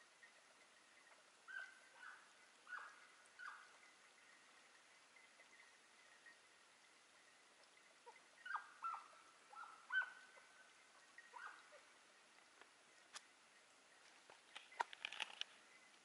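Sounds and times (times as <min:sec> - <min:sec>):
hound yelping: 0:08.1 - 0:10.4.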